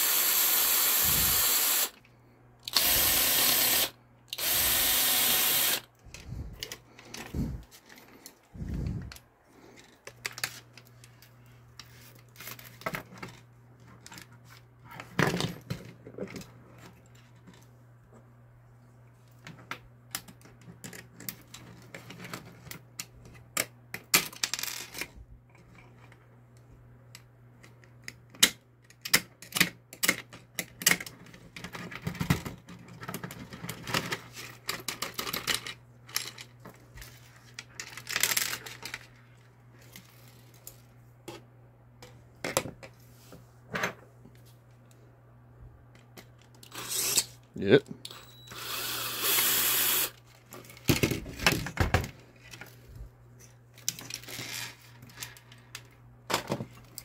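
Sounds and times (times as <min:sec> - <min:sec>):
steady low hum: 0:00.3 - 0:13.8
plastic parts clicking and rattling: 0:19.4 - 0:26.2, 0:27.1 - 0:41.4, 0:53.4 - 0:57.0.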